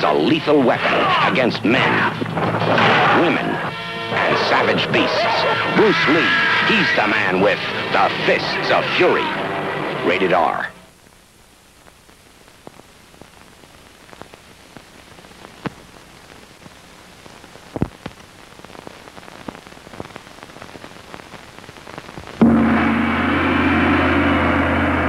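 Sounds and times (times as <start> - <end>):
faint clicks and crackle: 10.9 - 22.4
gong ringing: 22.4 - 25.0.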